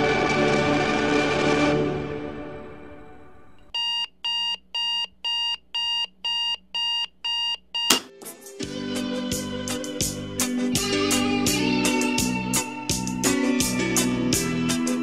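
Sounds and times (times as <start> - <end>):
music: 0.0 - 3.6, 7.9 - 15.0
sharp click: 7.9 - 8.1.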